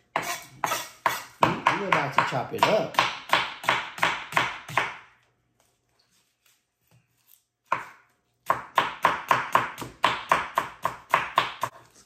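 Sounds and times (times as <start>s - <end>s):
knife chopping on wooden board: 0.1s - 5.1s, 7.6s - 12.0s.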